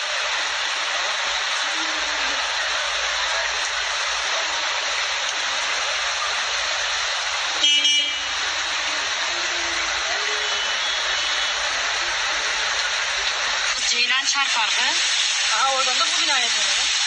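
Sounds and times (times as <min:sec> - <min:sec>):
floodwater rushing: 0:00.0 - 0:17.0
rain: 0:00.0 - 0:17.0
car horn honk: 0:07.6 - 0:08.3.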